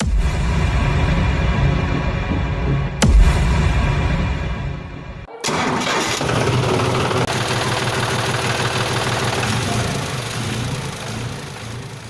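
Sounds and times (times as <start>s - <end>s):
tractor engine running: 5.3s - 12.0s.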